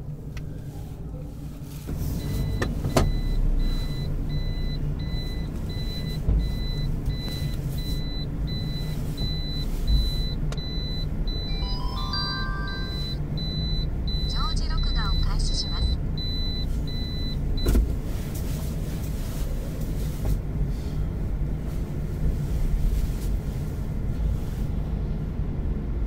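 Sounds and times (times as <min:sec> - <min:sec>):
vehicle engines rumbling: 0:00.0 - 0:26.0
electronic warning beeper: 0:02.4 - 0:17.4
falling chime tones: 0:11.4 - 0:13.3.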